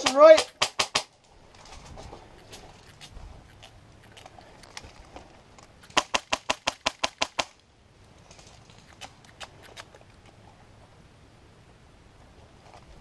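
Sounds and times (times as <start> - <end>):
airsoft rifle shots: 0.0 - 1.1, 5.9 - 7.5.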